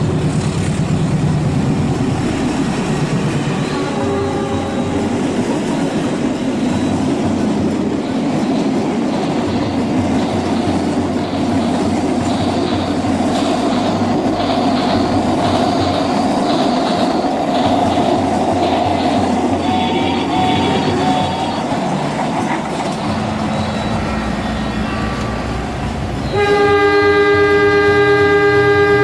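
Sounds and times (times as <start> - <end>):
wheels clicking over track joints: 4.0 - 26.5.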